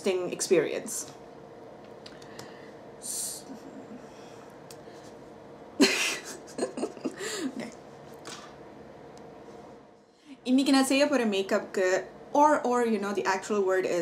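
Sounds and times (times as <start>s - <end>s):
woman laughing: 5.8s - 7.8s
woman gasping: 7.1s - 7.6s.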